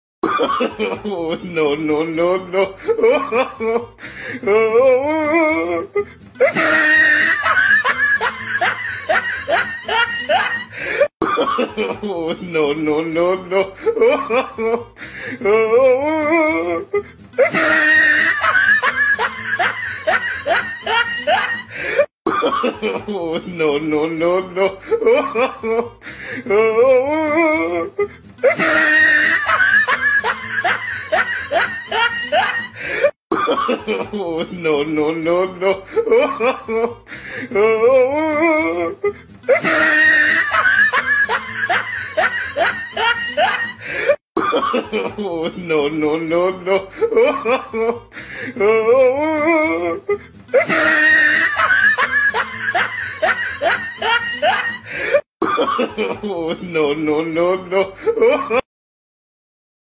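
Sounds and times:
high-pitched laughter: 0:05.1 - 0:12.0, 0:15.5 - 0:23.0, 0:26.6 - 0:32.8, 0:37.6 - 0:43.9, 0:48.7 - 0:55.0.

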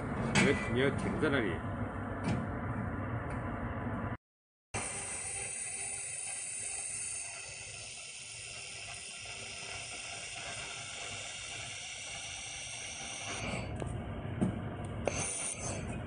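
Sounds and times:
laser welder hissing: 0:04.8 - 0:13.7, 0:15.0 - 0:15.9.

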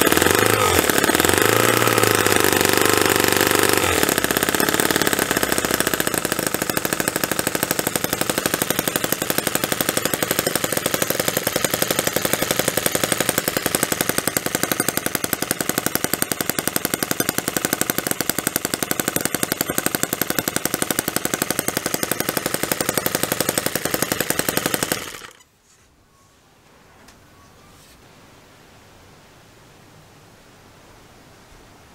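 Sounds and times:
model engine running: 0:00.0 - 0:25.4.

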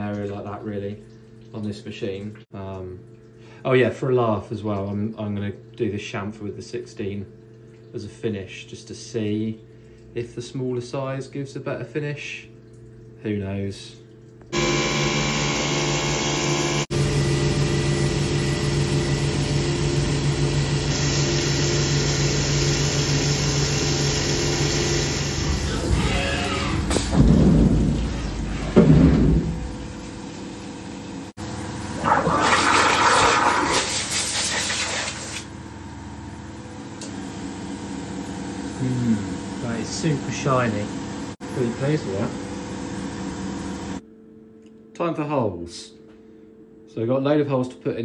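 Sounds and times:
milling machine spindle whine: 0:14.6 - 0:27.0
coolant hissing and splashing: 0:19.5 - 0:35.6, 0:36.8 - 0:44.0.

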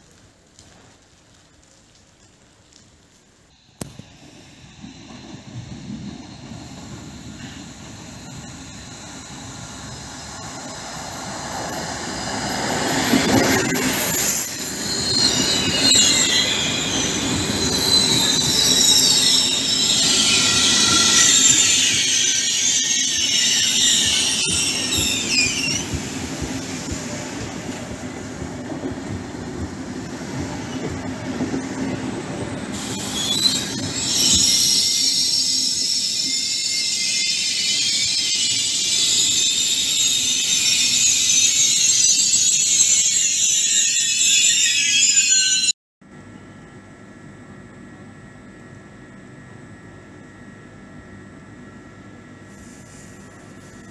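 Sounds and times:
rumble of train cars: 0:00.0 - 0:53.9
train wheels squealing: 0:04.1 - 0:28.2, 0:30.0 - 0:45.8.

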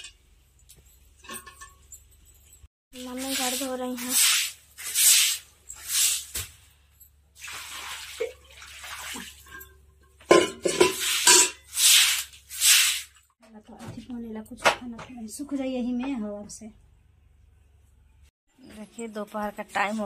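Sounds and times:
light metal clanks: 0:00.0 - 0:02.7
water splashing from bucket: 0:03.0 - 0:06.6, 0:07.4 - 0:09.7, 0:10.3 - 0:13.2
broom swishing water: 0:03.0 - 0:06.8, 0:07.4 - 0:09.7, 0:10.6 - 0:13.2.

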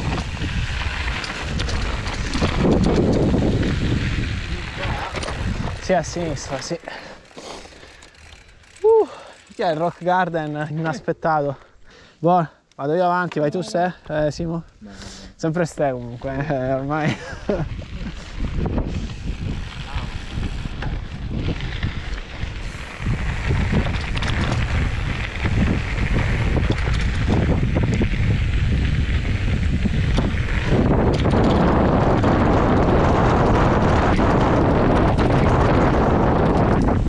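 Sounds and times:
wind buffeting microphone: 0:00.0 - 0:07.2, 0:15.9 - 0:37.0
tyres on loose stones: 0:00.0 - 0:10.8
tyres rolling over dirt: 0:00.0 - 0:10.8
bike rattling: 0:00.0 - 0:11.8, 0:15.6 - 0:37.0.

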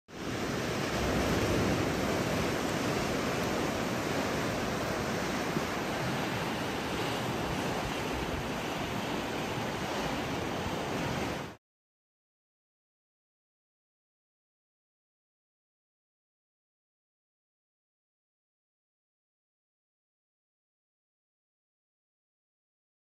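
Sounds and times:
surf breaking on rocks: 0:00.1 - 0:11.6.

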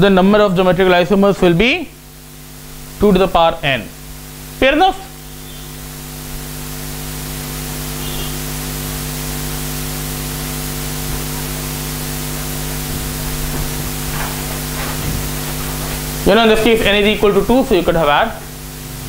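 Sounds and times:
steady hiss: 0:00.0 - 0:19.0
low hum: 0:10.2 - 0:19.0.

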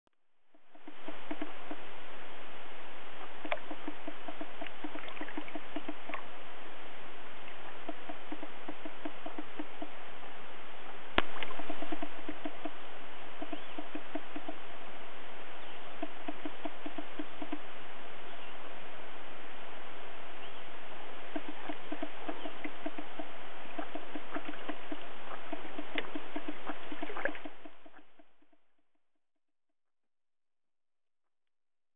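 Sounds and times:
water lapping against hull: 0:00.5 - 0:02.1, 0:03.1 - 0:14.9, 0:15.5 - 0:17.8, 0:20.4 - 0:28.8
moving water hiss: 0:00.6 - 0:28.2
soft rapid pulses: 0:03.2 - 0:06.4, 0:07.5 - 0:10.3, 0:11.2 - 0:18.2, 0:20.8 - 0:28.7
sharp ticks: 0:03.4 - 0:06.2, 0:07.8 - 0:10.0, 0:11.2 - 0:12.8, 0:13.4 - 0:14.6, 0:16.0 - 0:17.6, 0:21.3 - 0:28.6.

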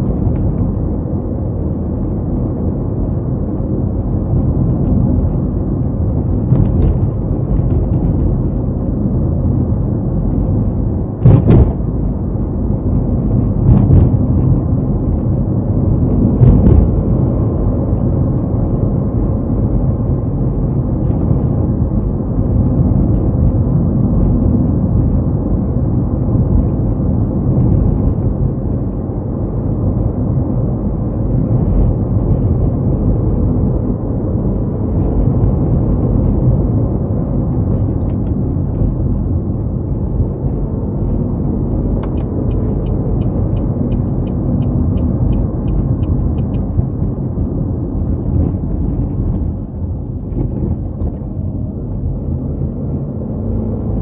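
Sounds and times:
car tyres and engine rumble: 0:00.0 - 0:54.0
loud thumps: 0:11.2 - 0:12.0.

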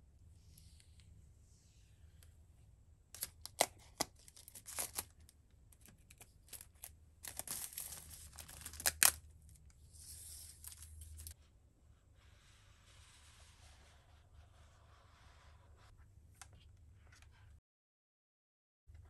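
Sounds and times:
plastic wrapping tearing: 0:03.2 - 0:05.3, 0:06.0 - 0:09.2
soft plastic rustle: 0:04.0 - 0:11.5.

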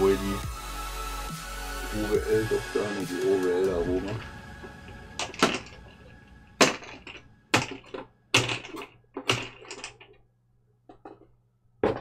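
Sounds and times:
hard objects knocking and clattering: 0:04.6 - 0:10.2, 0:10.8 - 0:12.0.

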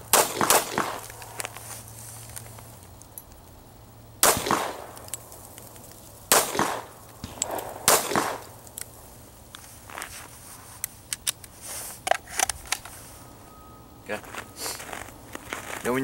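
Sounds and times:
handgun shots: 0:00.1 - 0:01.0, 0:04.2 - 0:05.0, 0:06.3 - 0:08.5.

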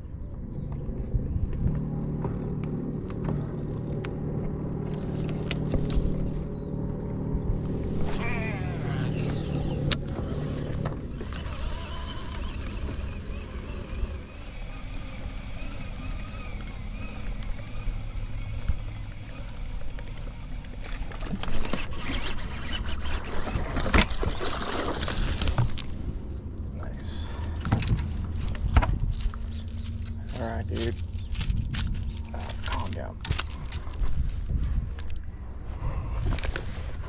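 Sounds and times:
boat motor running low: 0:00.2 - 0:34.1
rustling: 0:21.5 - 0:37.0.

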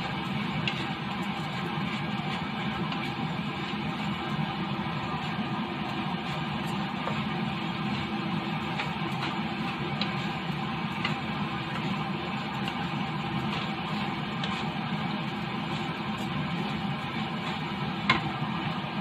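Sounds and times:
spatula stirring rice in pan: 0:00.0 - 0:19.0
steady hum: 0:00.0 - 0:19.0.

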